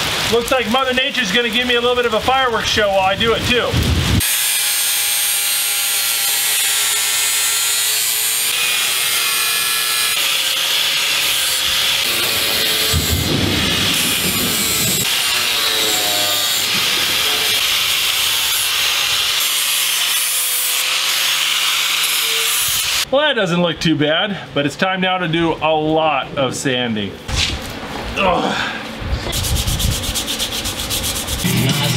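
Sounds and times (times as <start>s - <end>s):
angle grinder grinding wood: 4.2s - 23.0s, 30.2s - 31.9s.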